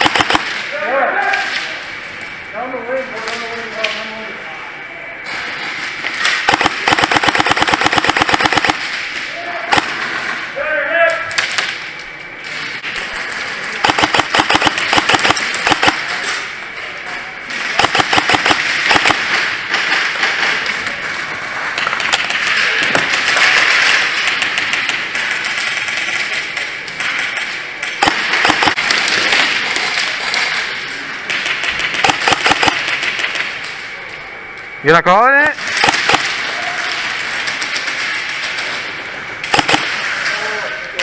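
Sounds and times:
airsoft guns firing rapid bursts: 0:00.0 - 0:00.6, 0:06.2 - 0:09.0, 0:09.7 - 0:10.2, 0:13.8 - 0:16.2, 0:17.6 - 0:20.6, 0:21.9 - 0:27.4, 0:28.0 - 0:30.1, 0:31.3 - 0:33.5, 0:35.6 - 0:36.4, 0:39.4 - 0:40.2.

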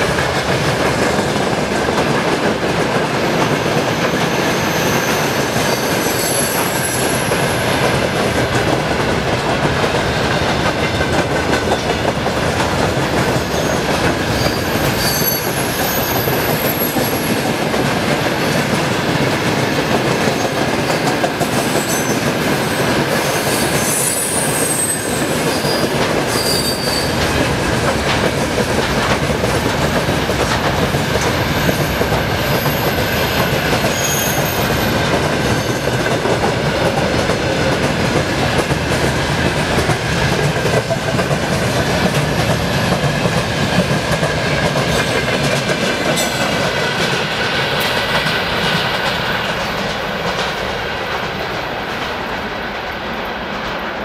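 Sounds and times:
clickety-clack over rail joints: 0:00.0 - 0:54.0
train wheels rushing on rails: 0:00.0 - 0:54.0
high wheel squeals: 0:03.9 - 0:07.6, 0:13.5 - 0:17.4, 0:21.7 - 0:27.2.

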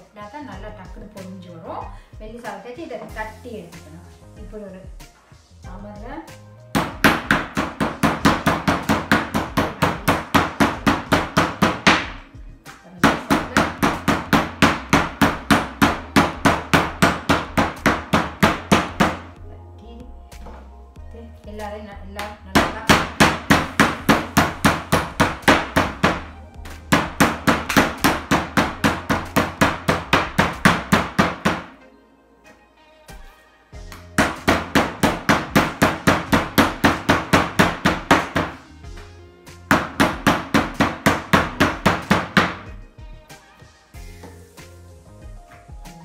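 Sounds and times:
background music: 0:00.0 - 0:46.0
meat mallet pounding chicken: 0:06.7 - 0:12.2, 0:13.0 - 0:19.3, 0:22.6 - 0:31.7, 0:33.9 - 0:38.6, 0:39.7 - 0:42.7.

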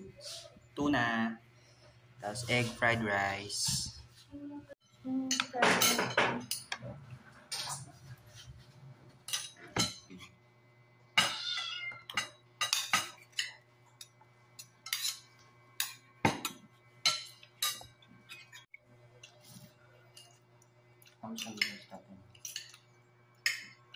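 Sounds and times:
cutlery clinking on bowl and plates: 0:05.3 - 0:06.8, 0:09.2 - 0:10.3, 0:11.2 - 0:19.4, 0:21.0 - 0:23.8.

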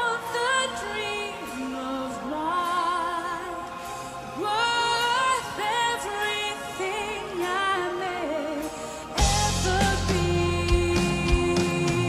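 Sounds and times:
woman singing with vibrato: 0:00.0 - 0:03.8, 0:04.4 - 0:12.0
metal band playing live: 0:09.2 - 0:12.0.

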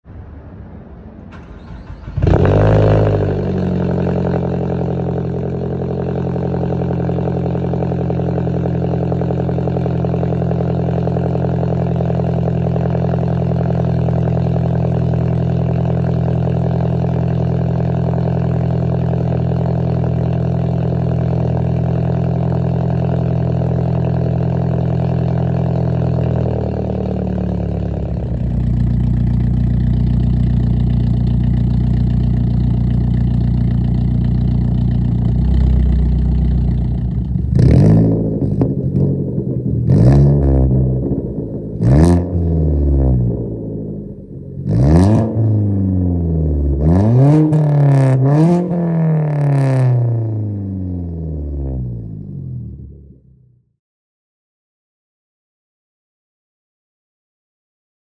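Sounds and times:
car exhaust idling: 0:01.3 - 0:47.0
engine revving: 0:01.3 - 0:50.8.

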